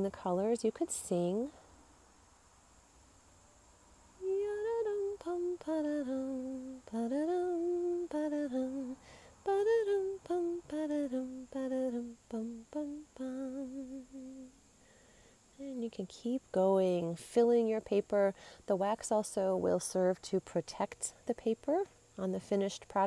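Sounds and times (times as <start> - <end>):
woman humming a wordless tune: 4.2 - 14.6, 15.5 - 23.0.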